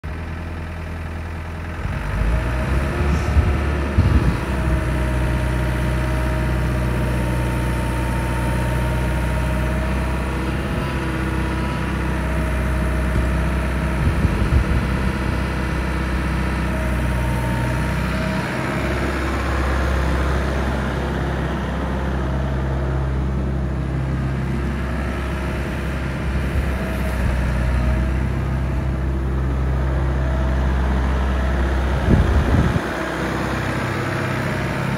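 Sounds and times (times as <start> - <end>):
excavator diesel engine running: 0.0 - 34.9.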